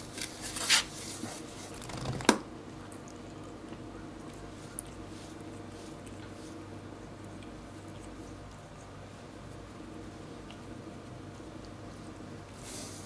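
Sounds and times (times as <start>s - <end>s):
cat licking: 3.1s - 12.9s.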